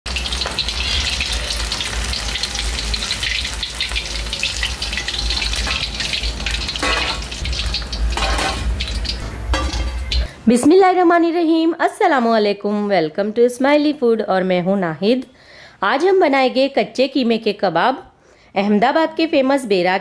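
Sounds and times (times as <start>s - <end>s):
meat deep-frying in oil: 0.0s - 10.4s.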